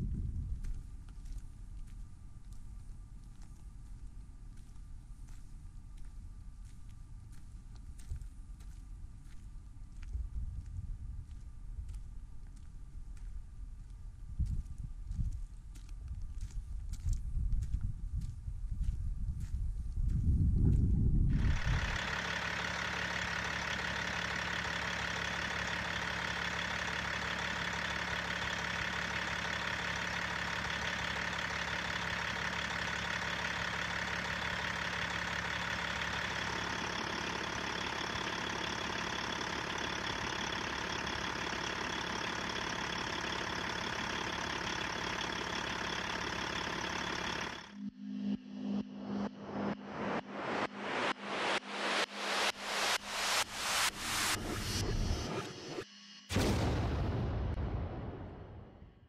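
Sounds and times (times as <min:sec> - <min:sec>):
low rumble: 0:00.0 - 0:22.2, 0:32.0 - 0:59.0
diesel truck engine idling: 0:21.3 - 0:47.8.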